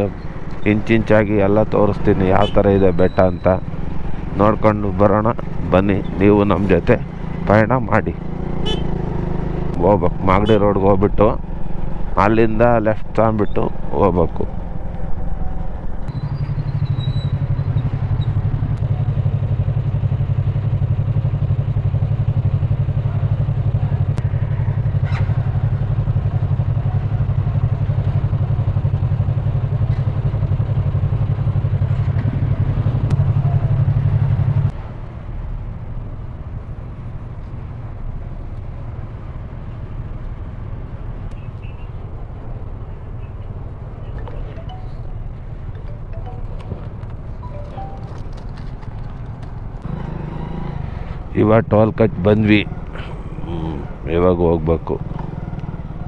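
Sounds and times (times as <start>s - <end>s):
motorcycle engine idling: 17.2s - 34.3s.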